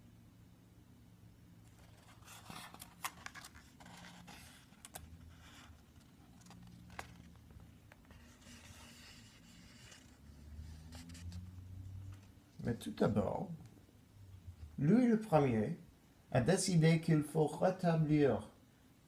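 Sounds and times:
faint scraping and rustling: 0:01.6 - 0:13.4.

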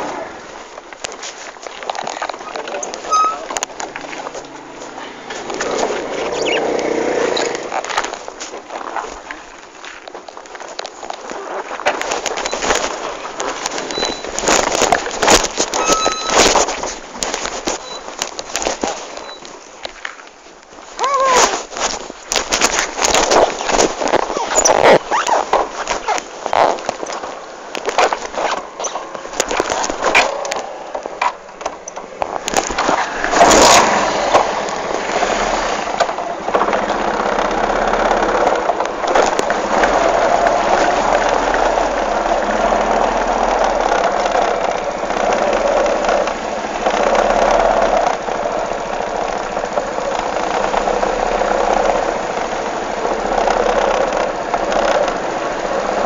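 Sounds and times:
engine running steadily: 0:22.1 - 0:56.0.

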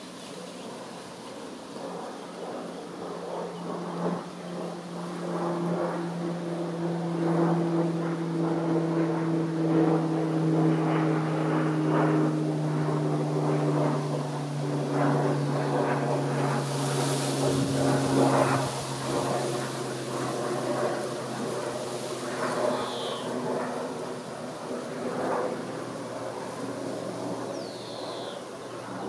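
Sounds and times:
passing engine drone: 0:00.0 - 0:29.0.

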